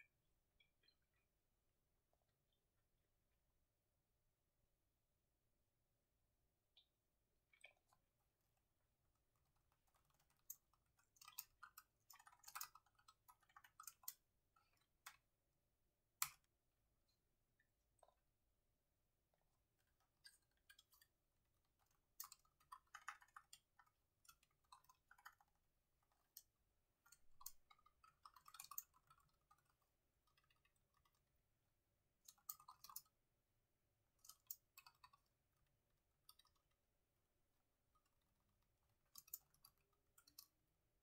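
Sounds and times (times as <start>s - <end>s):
typing on laptop keyboard: 7.6s - 15.3s, 19.8s - 31.5s, 32.2s - 33.3s, 34.1s - 36.9s, 38.0s - 40.7s.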